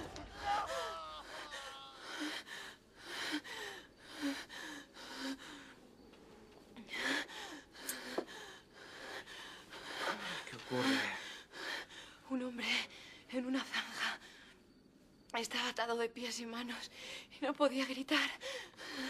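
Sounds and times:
woman sobbing: 0:00.2 - 0:04.4.

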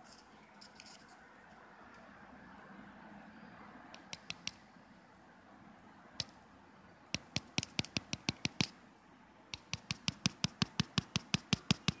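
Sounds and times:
rapid sharp clicks: 0:03.9 - 0:04.6, 0:07.1 - 0:08.8, 0:09.5 - 0:12.0.

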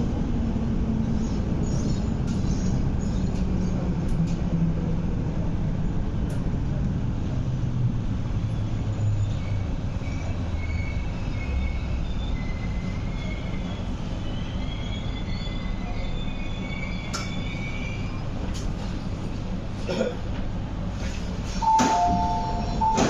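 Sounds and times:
electric train rumbling: 0:00.0 - 0:23.0
faint high wheel squeals: 0:08.9 - 0:18.3.

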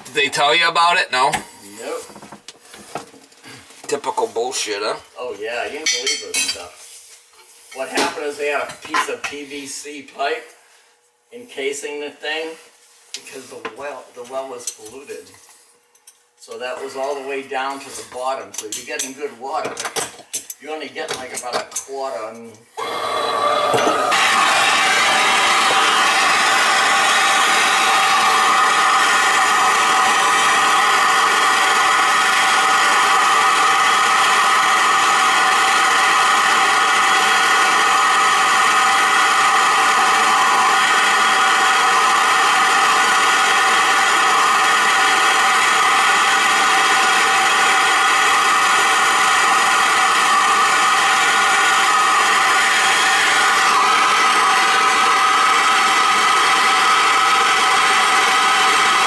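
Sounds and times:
gas torch burning: 0:22.8 - 0:59.0.

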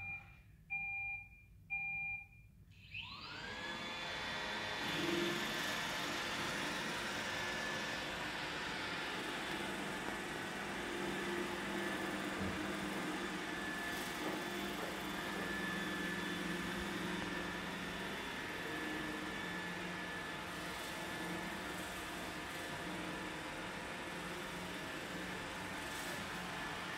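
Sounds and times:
robot vacuum running: 0:02.8 - 0:26.9.

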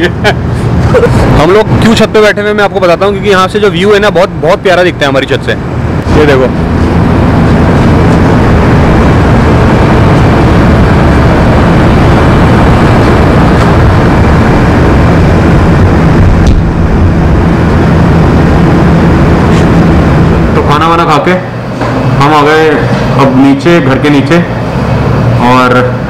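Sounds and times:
traffic rumble: 0:00.0 - 0:26.0
wind on microphone: 0:05.7 - 0:20.6.

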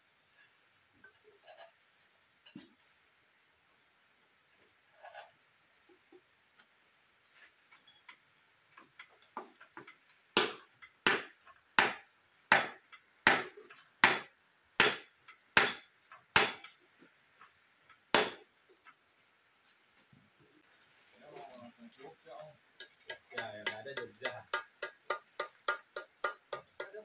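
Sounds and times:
hammer striking metal block: 0:10.4 - 0:16.7, 0:18.2 - 0:18.4, 0:22.8 - 0:27.0.

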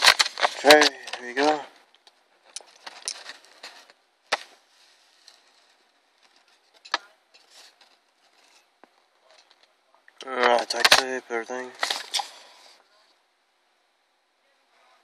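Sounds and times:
paper rustling and crinkling: 0:00.0 - 0:01.7, 0:02.6 - 0:08.6, 0:11.7 - 0:12.8.

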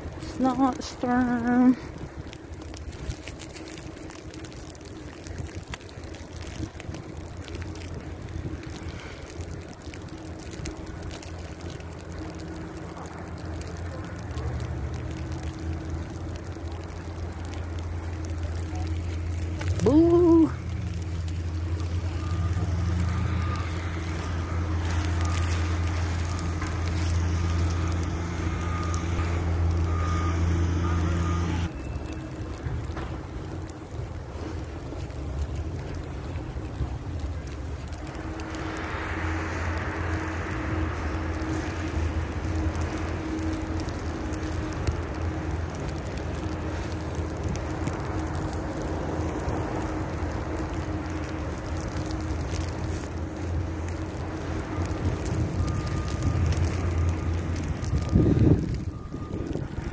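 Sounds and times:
vehicle engine humming: 0:00.0 - 0:59.9
wind buffeting a microphone: 0:57.6 - 0:59.9.

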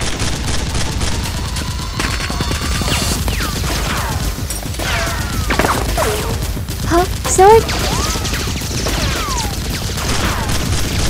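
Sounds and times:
rapid gunfire sound effects: 0:00.0 - 0:11.0
toy blasters firing: 0:04.8 - 0:11.0.

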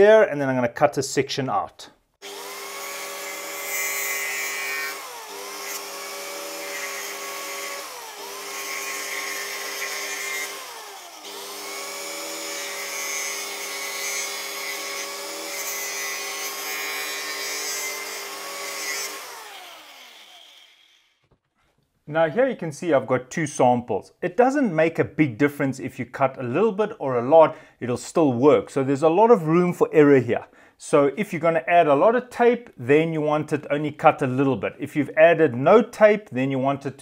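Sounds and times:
angle grinder cutting plastic pipe: 0:02.2 - 0:21.4.

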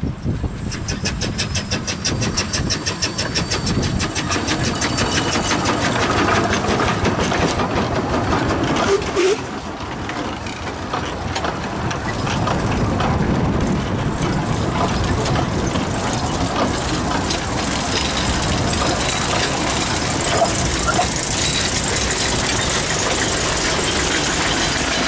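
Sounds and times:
steam locomotive exhaust beats: 0:00.0 - 0:25.0
train coaches rumbling on track: 0:00.0 - 0:25.0
wheel squeal: 0:00.5 - 0:07.4, 0:08.8 - 0:09.6, 0:15.0 - 0:25.0.

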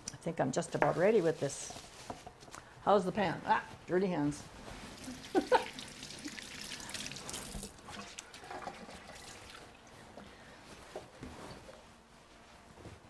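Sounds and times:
hands washing under water: 0:04.9 - 0:09.9
tap water running into sink: 0:05.1 - 0:09.6.

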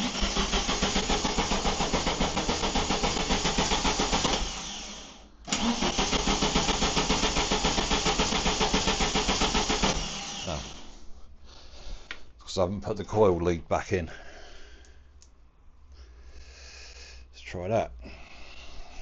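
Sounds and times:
engine cranking on starter motor: 0:00.0 - 0:11.0.

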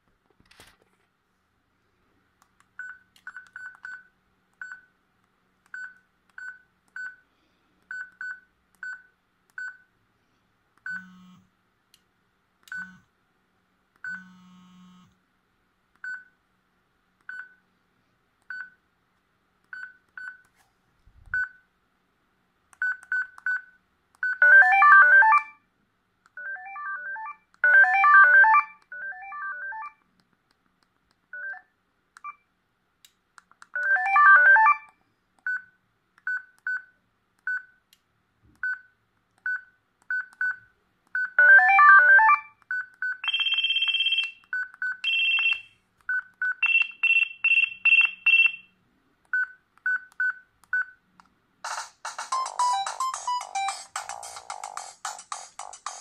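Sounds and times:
phone key beeps: 0:42.7 - 0:48.6
ringtone melody snippets: 0:51.7 - 0:56.0.

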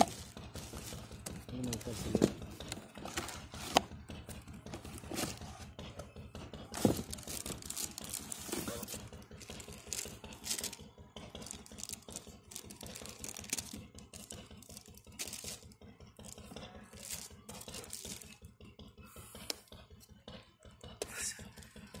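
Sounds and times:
cardboard and plastic packaging rustling: 0:00.0 - 0:18.4.

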